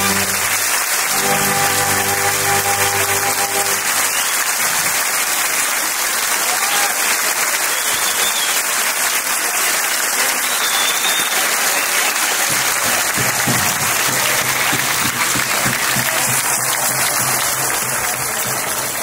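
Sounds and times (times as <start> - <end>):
crowd applauding: 0.0 - 19.0.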